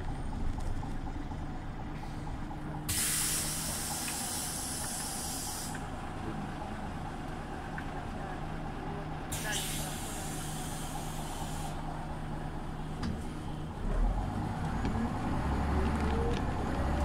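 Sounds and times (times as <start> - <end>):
bus engine running: 0.0 - 17.0
compressed air hiss: 2.9 - 5.8, 9.4 - 11.8.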